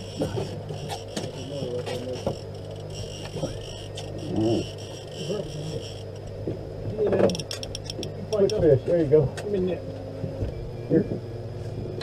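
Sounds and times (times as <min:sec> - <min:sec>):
boat motor humming: 0:00.0 - 0:12.0
muffled voices: 0:00.2 - 0:07.5.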